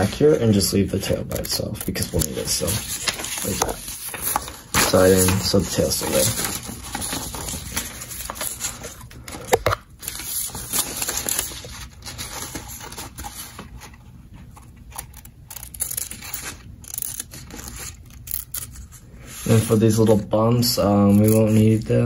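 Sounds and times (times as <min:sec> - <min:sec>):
paper rustling: 0:00.0 - 0:22.0
scissors snipping paper: 0:15.0 - 0:18.9, 0:20.9 - 0:21.9.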